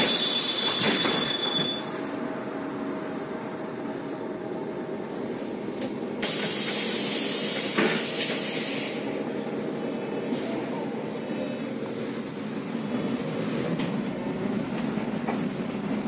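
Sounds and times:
idling bus hum: 1.8s - 16.0s
air hiss from bus doors: 6.2s - 9.2s.

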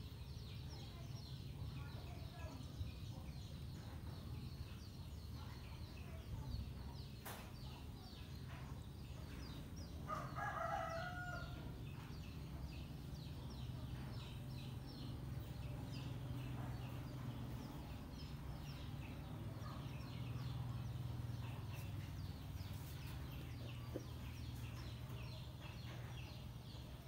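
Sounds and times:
rooster crowing: 10.1s - 11.6s.

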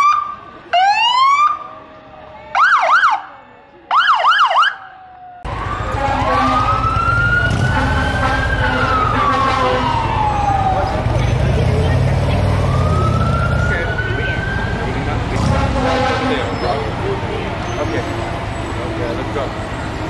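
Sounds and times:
police siren whoop and yelp: 0.0s - 1.7s, 2.5s - 3.3s, 3.9s - 11.1s, 12.6s - 14.9s
siren wailing: 0.0s - 3.3s, 3.9s - 15.4s.

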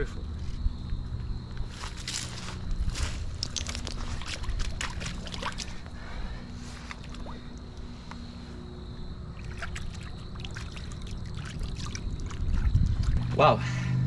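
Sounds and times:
steady low hum: 0.0s - 14.0s
shallow water sloshing: 3.2s - 8.0s, 9.3s - 13.3s
clicks and crackles: 3.3s - 5.7s.

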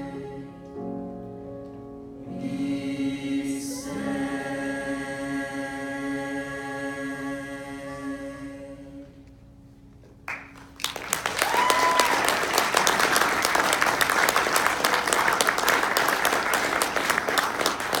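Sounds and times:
audience applause: 10.3s - 18.0s
high call from crowd: 11.3s - 15.6s.

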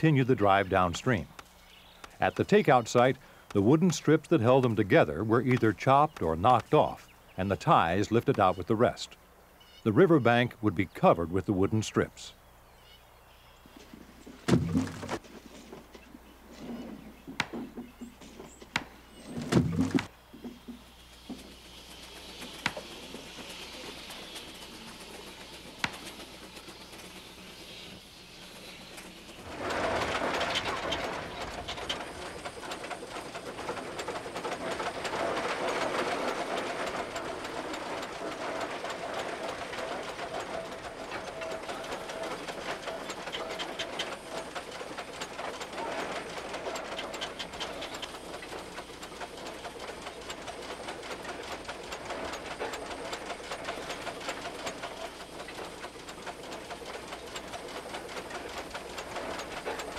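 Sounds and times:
machinery hum: 11.2s - 59.9s
machinery clattering: 13.8s - 16.0s, 16.7s - 59.9s.

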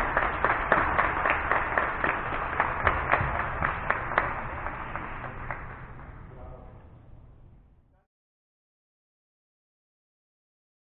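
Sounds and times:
group clapping in rhythm: 0.0s - 6.3s.

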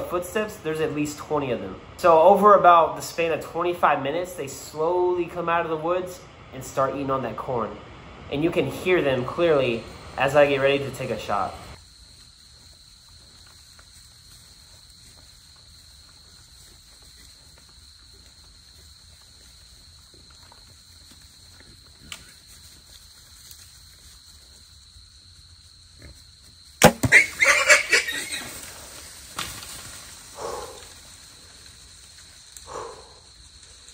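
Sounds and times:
steady high hum: 0.0s - 11.8s
sharp crack: 26.8s - 27.4s
hogs squealing: 27.0s - 28.7s.

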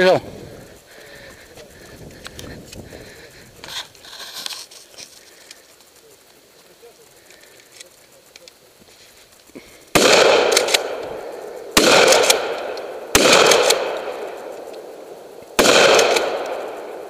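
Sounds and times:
shotgun shots with echo: 9.9s - 14.4s, 15.6s - 17.0s.

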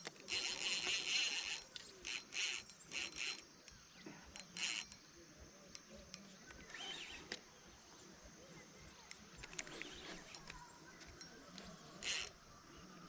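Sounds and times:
fishing reel buzzing: 0.0s - 5.0s, 6.5s - 7.4s, 9.5s - 10.6s, 11.5s - 12.5s.

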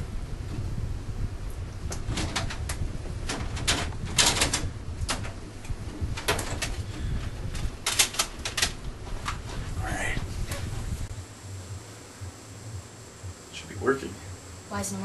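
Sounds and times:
low rumble: 8.5s - 15.0s.

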